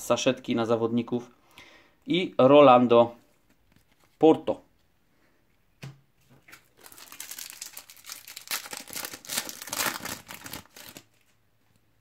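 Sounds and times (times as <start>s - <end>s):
foil packet crinkling and tearing: 6.6s - 11.3s.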